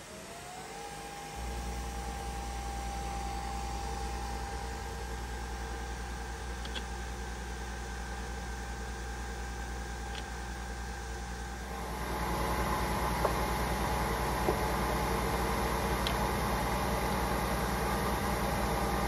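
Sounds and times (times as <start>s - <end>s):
coffee machine motor and pump hum: 0.0s - 19.0s
small clicks: 6.6s - 6.9s.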